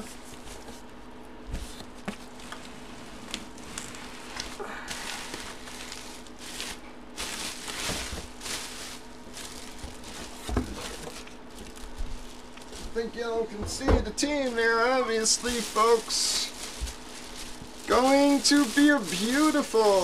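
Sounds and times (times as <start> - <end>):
bubble wrap rustling and crinkling: 0.0 - 13.1, 14.2 - 20.0.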